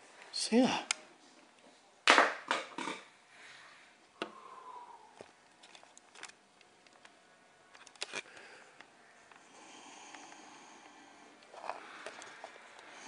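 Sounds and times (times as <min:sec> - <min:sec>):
camera handling clicks and rustles: 0:05.2 - 0:08.9.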